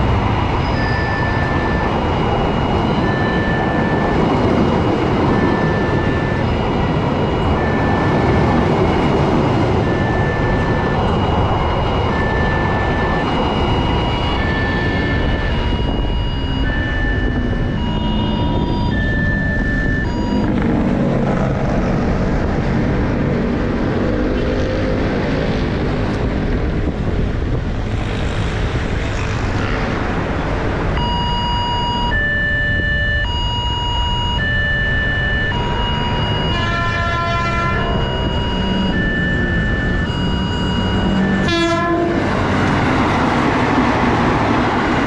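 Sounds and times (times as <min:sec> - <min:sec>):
train rumbling past: 0:00.0 - 0:16.2, 0:35.5 - 0:45.0
level crossing alarm two-tone chimes: 0:00.0 - 0:20.6, 0:31.0 - 0:41.5
train horn: 0:36.5 - 0:38.0, 0:41.3 - 0:42.4.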